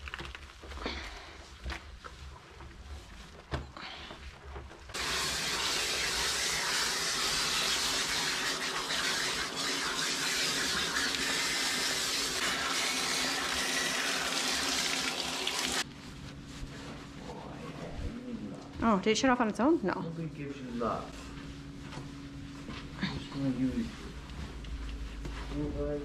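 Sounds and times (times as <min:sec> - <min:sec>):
hose water spraying: 0:05.0 - 0:15.9.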